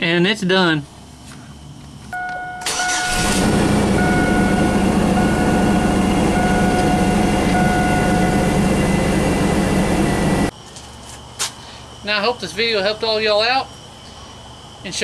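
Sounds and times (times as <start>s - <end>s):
dashboard warning chime: 2.2s - 10.5s
engine cranking and idling: 2.6s - 10.5s.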